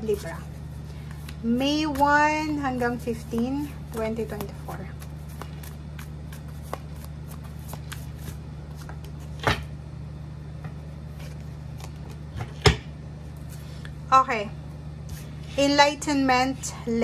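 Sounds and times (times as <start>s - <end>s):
cards being shuffled by hand: 0.2s - 9.5s, 11.1s - 12.5s.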